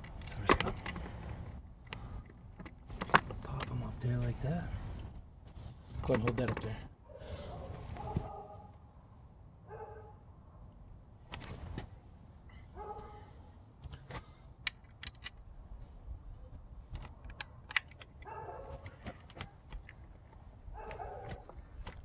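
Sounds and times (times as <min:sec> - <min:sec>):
small metal hardware clicking: 0:13.8 - 0:15.4, 0:16.9 - 0:20.1.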